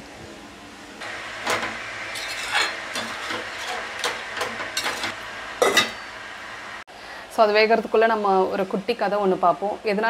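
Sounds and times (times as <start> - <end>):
curry sizzling: 1.0 - 6.9
spoon scraping a steel pot: 2.1 - 6.0.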